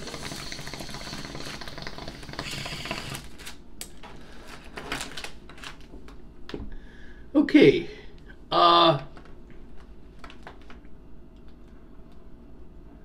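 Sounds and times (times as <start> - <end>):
water bong bubbling: 0.0 - 3.3.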